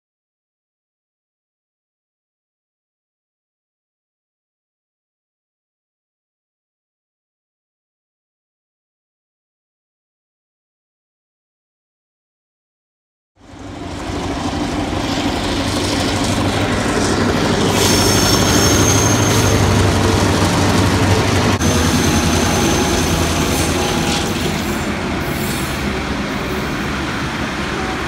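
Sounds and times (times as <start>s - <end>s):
train wheels rumbling on track: 13.4s - 28.0s
high wheel squeal: 15.0s - 26.7s.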